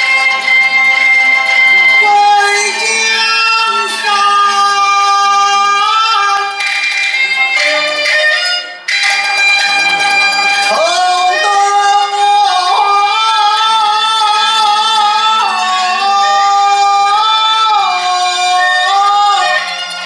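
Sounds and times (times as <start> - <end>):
high voice opera singing: 1.7 - 6.6, 10.7 - 19.7.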